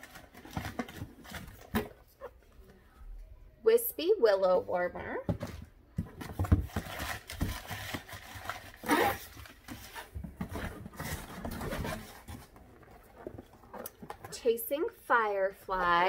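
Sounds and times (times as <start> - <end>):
cardboard boxes rustling and scraping: 5.4 - 14.3.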